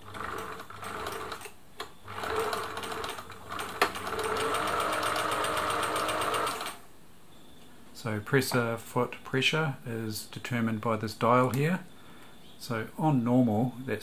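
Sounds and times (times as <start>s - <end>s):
electric sewing machine stitching: 0.0s - 6.8s.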